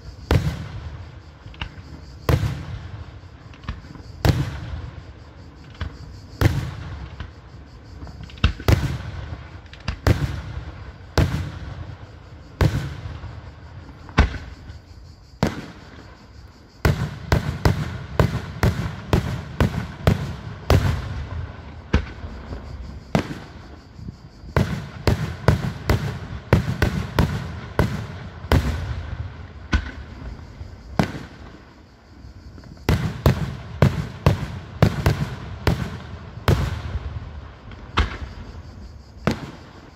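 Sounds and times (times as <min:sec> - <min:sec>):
fireworks bursting with sharp bangs: 0:00.0 - 0:39.9.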